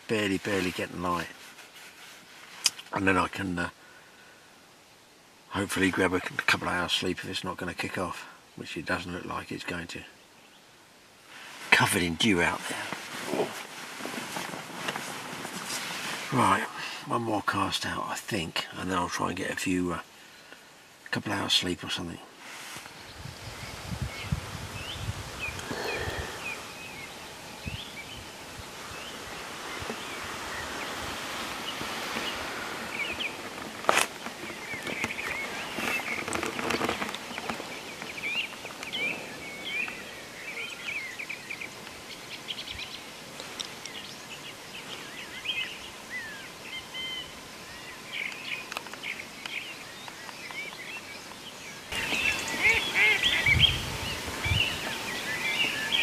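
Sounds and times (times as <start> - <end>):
small birds chirping: 15.6 - 56.0.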